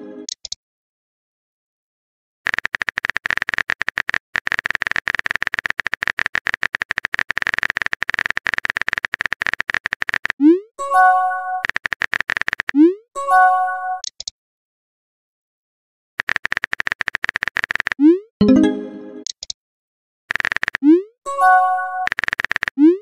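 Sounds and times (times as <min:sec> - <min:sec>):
electronic typing clicks: 0:02.5 - 0:10.6, 0:11.3 - 0:13.0, 0:14.0 - 0:14.3, 0:16.2 - 0:18.6, 0:19.2 - 0:19.6, 0:20.3 - 0:21.4, 0:22.0 - 0:23.0
message sent chime: 0:10.8 - 0:11.6, 0:18.4 - 0:19.2.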